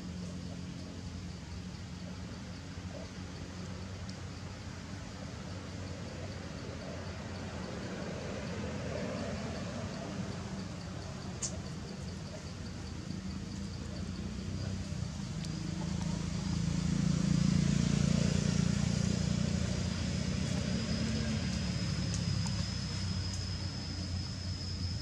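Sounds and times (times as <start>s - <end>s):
motor vehicle rumble: 0.0s - 25.0s
high-pitched whine: 15.4s - 25.0s.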